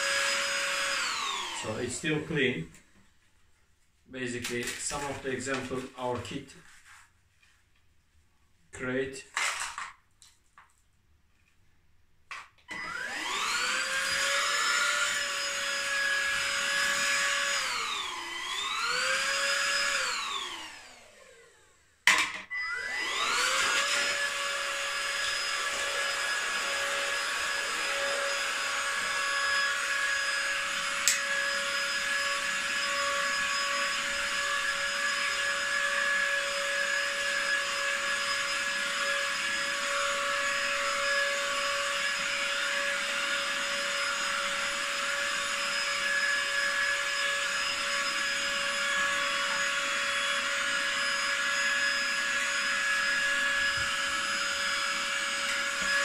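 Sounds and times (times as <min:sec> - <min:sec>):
hand vacuum whining: 0:00.0 - 0:02.4, 0:12.6 - 0:56.0.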